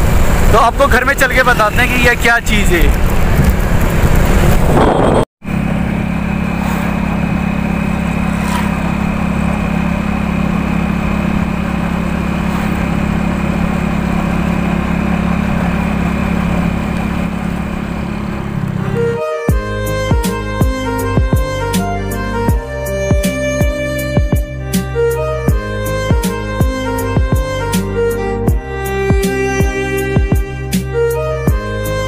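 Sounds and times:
motorcycle engine running: 2.9 - 21.8.

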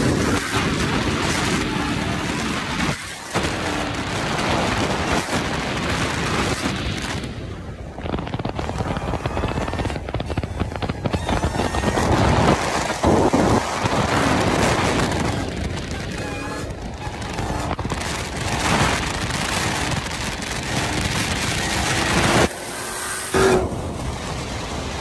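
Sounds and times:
highway road noise: 0.0 - 25.0
wind buffeting microphone: 0.0 - 25.0.

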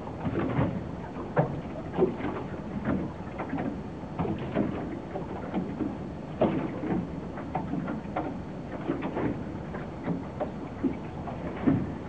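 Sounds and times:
water lapping and splashing: 0.0 - 12.0.

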